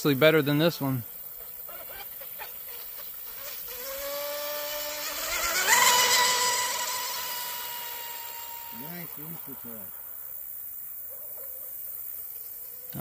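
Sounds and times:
spray hissing: 1.3s - 11.0s
electric motor whining: 1.7s - 10.3s.

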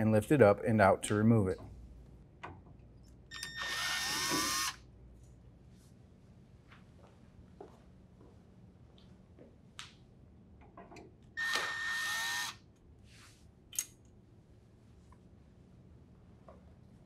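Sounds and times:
cordless drill spinning: 3.3s - 4.8s, 11.4s - 12.6s.

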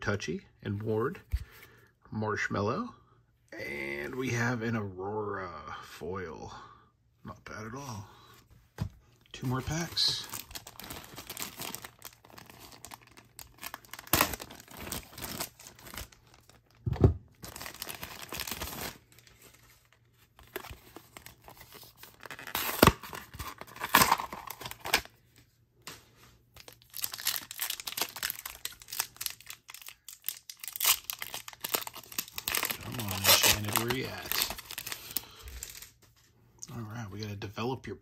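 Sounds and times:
plastic and foil crinkling: 9.4s - 16.8s, 17.4s - 25.1s, 26.6s - 36.2s.

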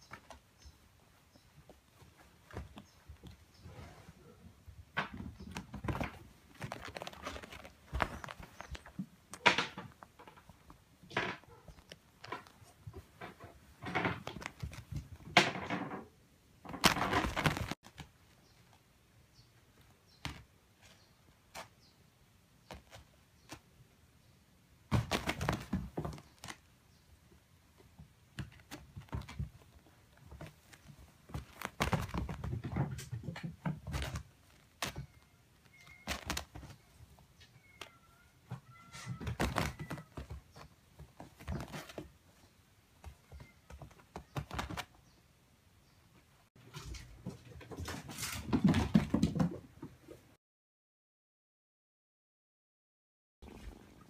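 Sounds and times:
kitten paws thumping on a mat: 28.3s - 35.2s.

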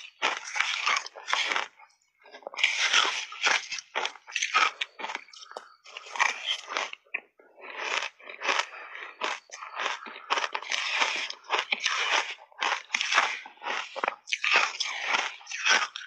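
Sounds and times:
shaved ice crunching in mouth: 0.0s - 1.8s, 2.5s - 7.0s, 7.6s - 16.0s.

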